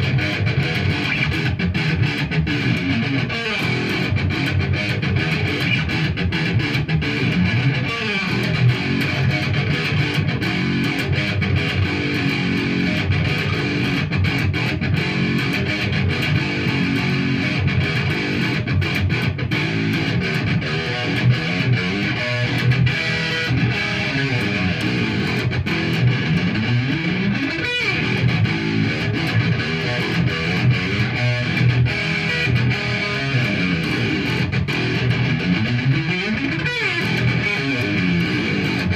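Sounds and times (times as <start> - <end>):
electric guitar picked notes: 0.0 - 38.9.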